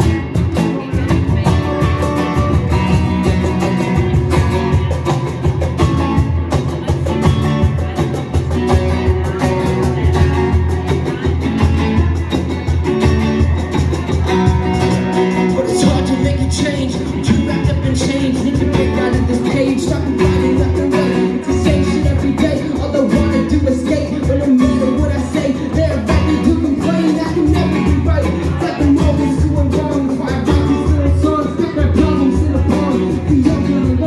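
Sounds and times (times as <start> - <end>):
acoustic guitar: 0.0 - 34.0
cajon beat: 0.0 - 34.0
man singing: 14.0 - 34.0.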